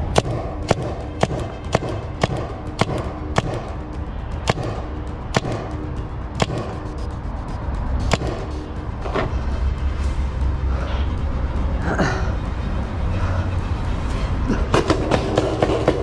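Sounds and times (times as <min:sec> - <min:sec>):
paintball marker shots: 0:00.1 - 0:03.8, 0:04.4 - 0:07.0, 0:08.0 - 0:08.6.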